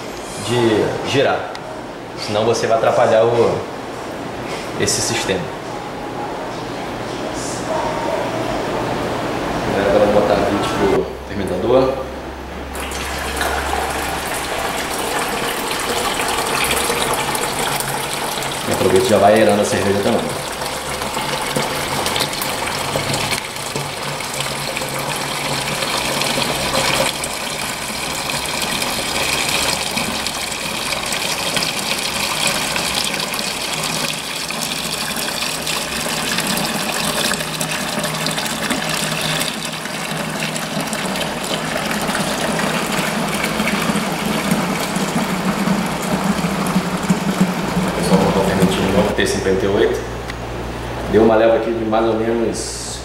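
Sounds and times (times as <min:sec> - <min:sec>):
liquid splashing into bucket: 0:12.7 - 0:49.2.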